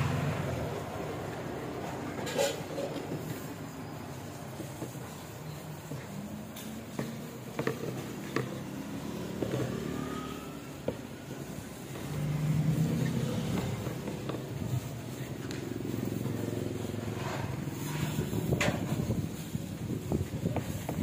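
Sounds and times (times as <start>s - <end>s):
traffic running steadily: 0.0s - 21.0s.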